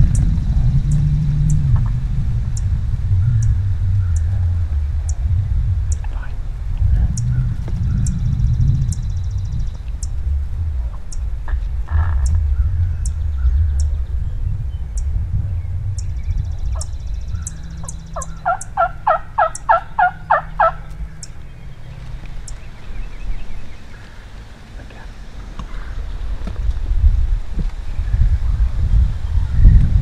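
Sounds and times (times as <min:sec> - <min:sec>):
wild turkey calling: 0:16.8 - 0:21.4.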